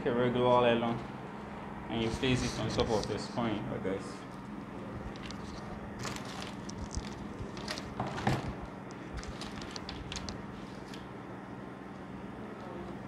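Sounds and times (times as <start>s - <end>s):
steady low hum: 0.0s - 13.0s
plastic sheet rustling: 5.0s - 11.1s.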